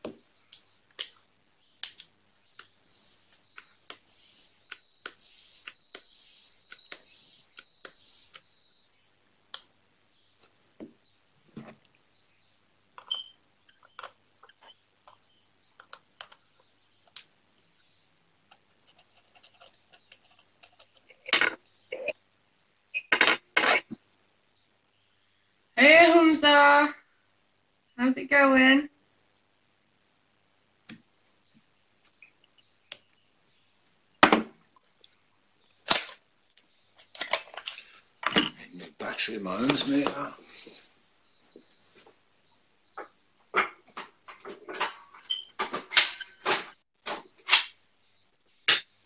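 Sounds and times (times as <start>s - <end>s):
small objects clicking on work surface: 1.8s - 8.4s.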